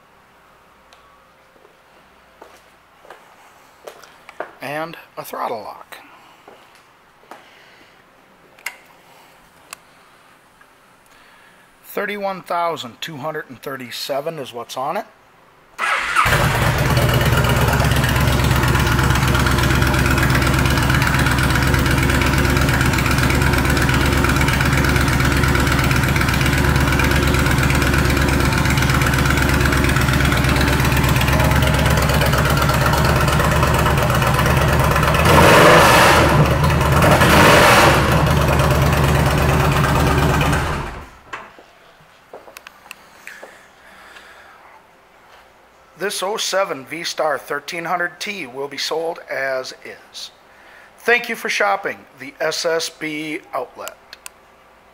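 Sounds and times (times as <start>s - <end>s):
motorcycle engine revving: 15.8s - 41.2s
motorcycle engine starting: 15.8s - 41.3s
motorcycle engine idling: 16.2s - 41.2s.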